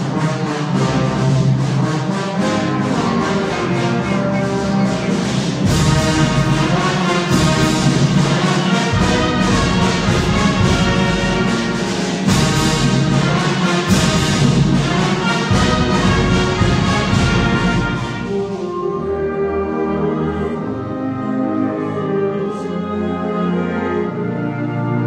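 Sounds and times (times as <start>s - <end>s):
brass: 0.0s - 25.0s
wind band playing: 0.0s - 25.0s.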